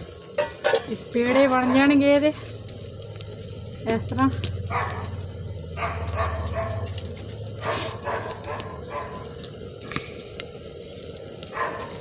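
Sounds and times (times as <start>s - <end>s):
steady low hum: 2.0s - 11.3s.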